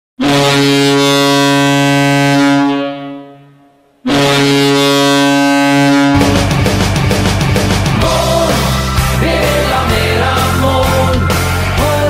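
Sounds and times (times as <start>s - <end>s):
deep goal horn blasts: 0.2s - 8.9s.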